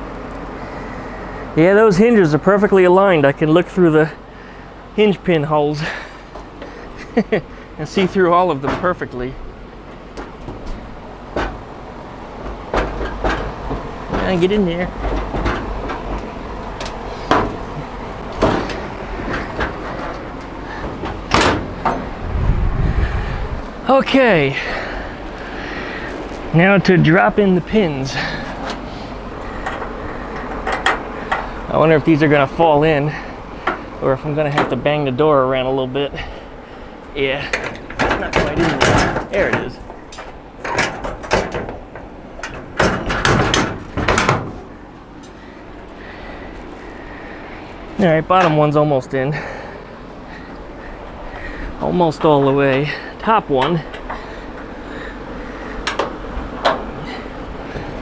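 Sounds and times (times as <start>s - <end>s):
steady low rumble: 0.0s - 58.0s
metal door knocks and clunks: 10.2s - 11.7s, 12.4s - 16.3s, 17.3s - 17.8s, 18.4s - 20.2s, 20.8s - 22.1s, 37.6s - 39.8s, 40.6s - 44.7s.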